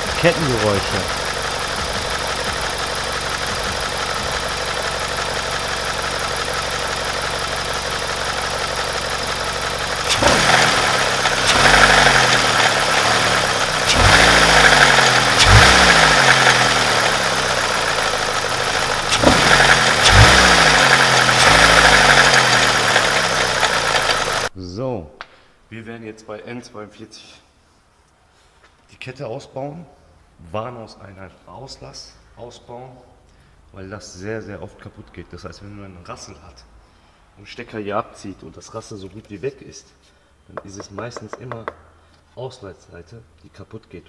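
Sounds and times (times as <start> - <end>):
car engine idling and revving: 0.0 - 24.5.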